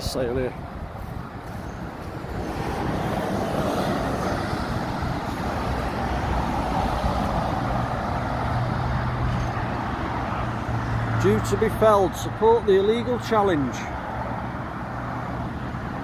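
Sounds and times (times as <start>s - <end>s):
road traffic rushing: 0.0s - 16.0s.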